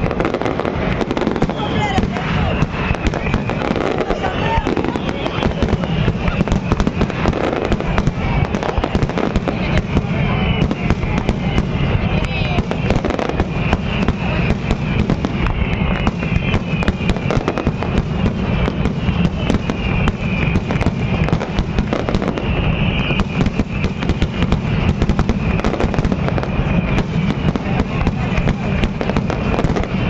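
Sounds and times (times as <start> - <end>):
continuous rumble: 0.0 - 30.0
fireworks bursting and crackling: 0.0 - 30.0.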